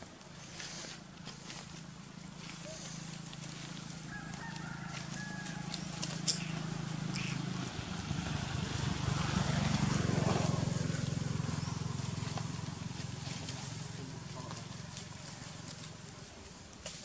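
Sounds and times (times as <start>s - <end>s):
motor engine running: 0.0s - 17.0s.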